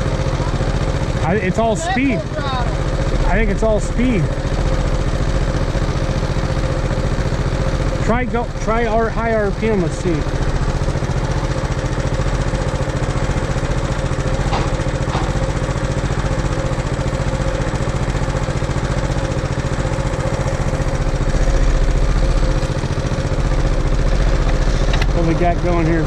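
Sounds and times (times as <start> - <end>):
tractor engine running at high revs: 0.0 - 26.0.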